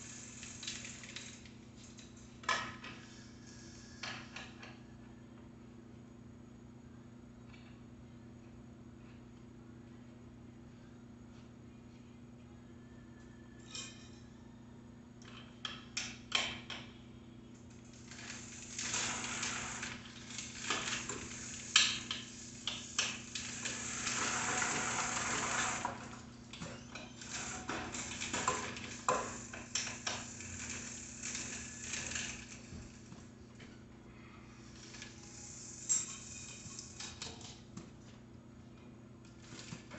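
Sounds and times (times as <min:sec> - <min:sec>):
hiss-like noise: 0:00.0 - 0:04.7, 0:17.8 - 0:33.3, 0:34.3 - 0:37.4.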